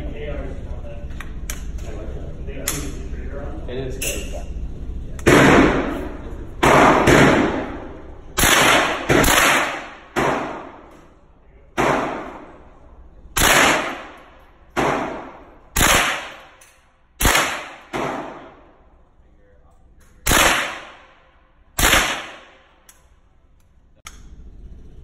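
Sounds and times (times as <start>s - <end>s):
gunshots echoing indoors: 5.2s - 19.1s, 20.2s - 23.4s.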